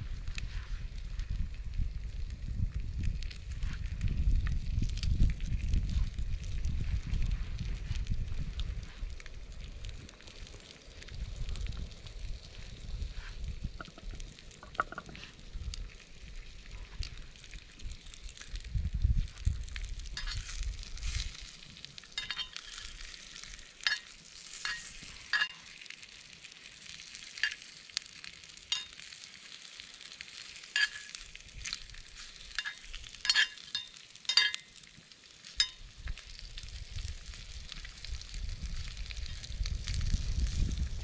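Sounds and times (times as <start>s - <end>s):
sharp pops and crackles: 0.0s - 41.0s
food sizzling in frying pan: 9.9s - 41.0s.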